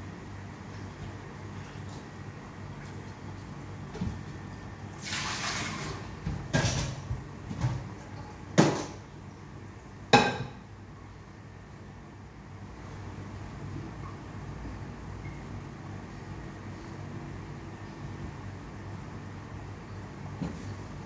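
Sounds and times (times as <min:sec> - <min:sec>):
kitchenware clattering: 0:06.5 - 0:07.1, 0:10.2 - 0:10.6
pots and dishes knocking: 0:10.2 - 0:10.6.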